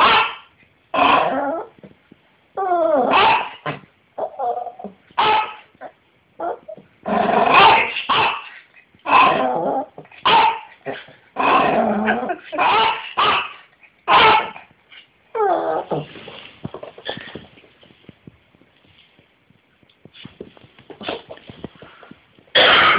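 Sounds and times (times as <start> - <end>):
dog barking: 0.0 - 0.5, 3.1 - 3.6, 5.2 - 5.6, 7.5 - 8.5, 10.2 - 10.7, 12.6 - 14.6
dog whining: 2.6 - 3.6, 4.2 - 6.8, 15.3 - 16.1.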